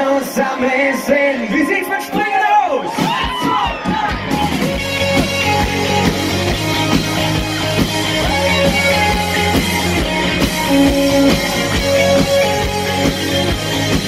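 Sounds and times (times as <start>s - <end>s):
live rock band playing: 2.8s - 14.0s.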